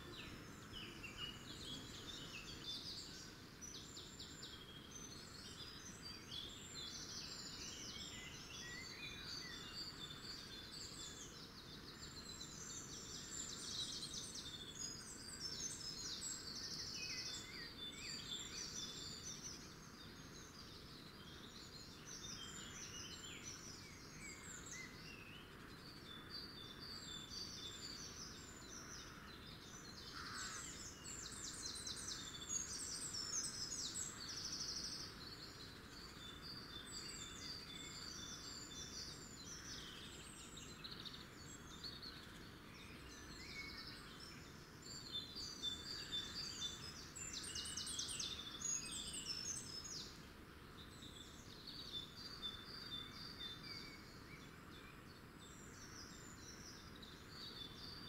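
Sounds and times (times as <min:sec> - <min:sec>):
faint steady outdoor hiss: 0:00.0 - 0:58.0
songbirds singing and chirping: 0:00.0 - 0:58.0.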